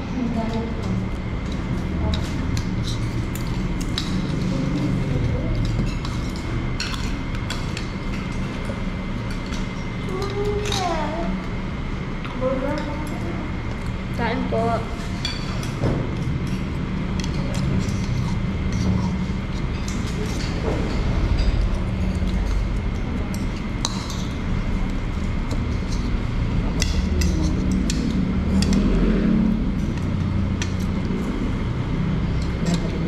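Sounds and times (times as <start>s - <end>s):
low background hum: 0.0s - 33.0s
cutlery clinking on ceramic plates: 5.6s - 8.7s.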